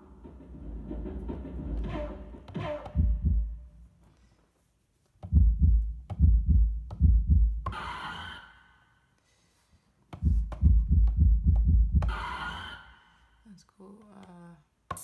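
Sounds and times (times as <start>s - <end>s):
deep heartbeat thumps: 1.5s - 3.7s, 5.3s - 7.7s, 10.2s - 12.2s.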